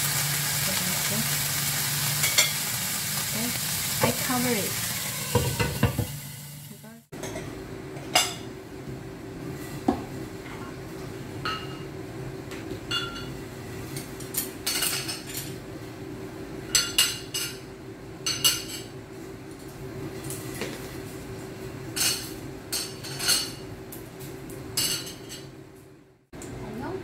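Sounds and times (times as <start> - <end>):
dishes clinking on a table: 11.4 - 11.8, 12.9 - 13.3, 22.0 - 23.6.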